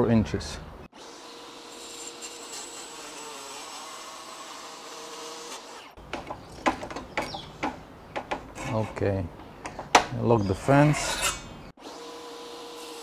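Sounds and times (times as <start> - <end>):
sharp clicks and knocks of metal: 6.1 - 8.6.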